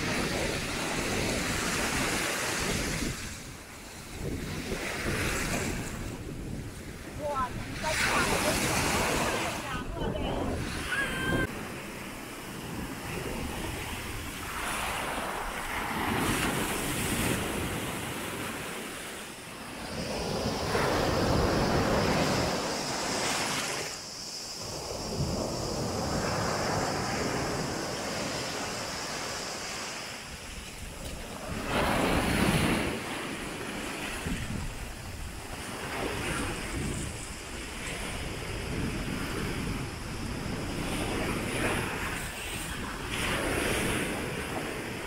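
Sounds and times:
wind buffeting microphone: 0.0s - 19.1s, 30.2s - 45.0s
waves breaking on pebble beach: 7.1s - 45.0s.

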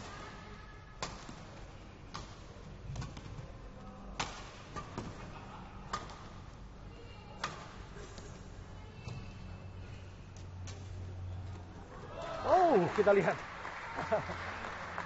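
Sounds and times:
rackets striking shuttlecock: 1.0s - 3.3s, 4.2s - 5.2s, 5.8s - 6.4s, 7.4s - 8.4s.

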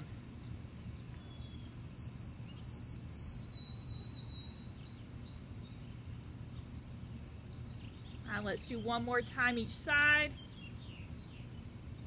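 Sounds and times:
low background rumble: 0.0s - 12.0s
faint bird chirps: 0.4s - 9.2s.

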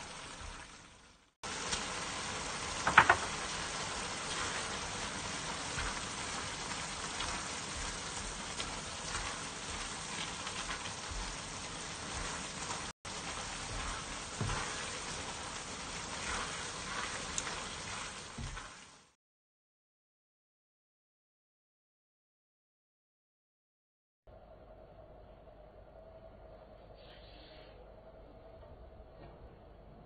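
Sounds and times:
food sizzling in a wok: 0.0s - 19.2s
spatula scraping: 3.1s - 19.0s.

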